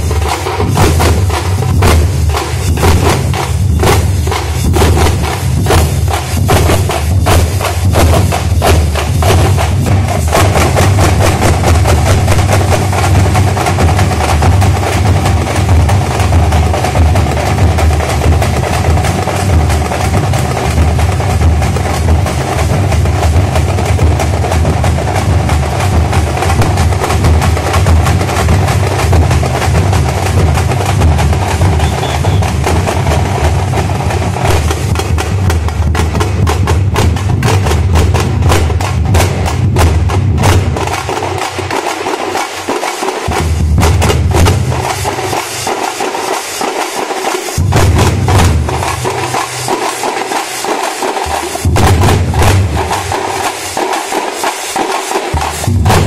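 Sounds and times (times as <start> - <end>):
bass drums beating: 0.0 - 41.8, 43.3 - 45.4, 47.6 - 49.8, 51.2 - 53.4, 55.4 - 56.0
frame drums beaten with sticks: 0.0 - 56.0.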